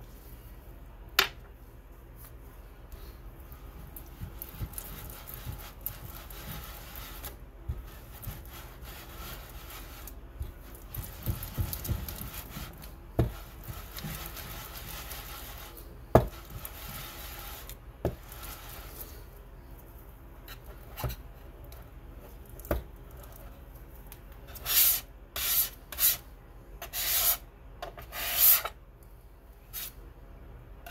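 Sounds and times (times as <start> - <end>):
muller rasping on gritty paste: 3.6 - 19.1.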